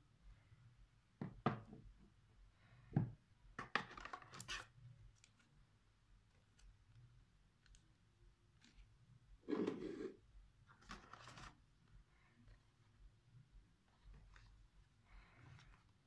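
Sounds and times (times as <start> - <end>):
paper and plastic rustling: 10.7 - 11.6.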